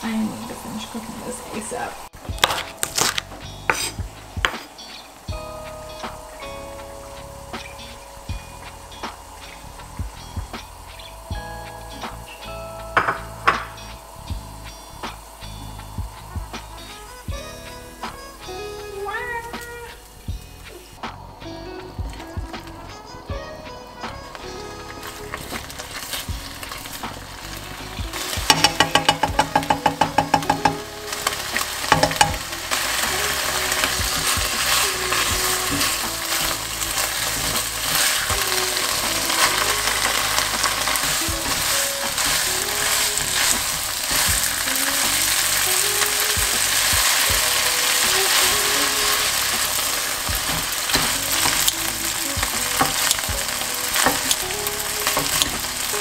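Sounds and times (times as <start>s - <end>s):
food sizzling in a frying pan: 0.0s - 21.2s, 21.8s - 56.0s
tongs clicking: 28.1s - 56.0s
sharp taps: 28.4s - 30.8s.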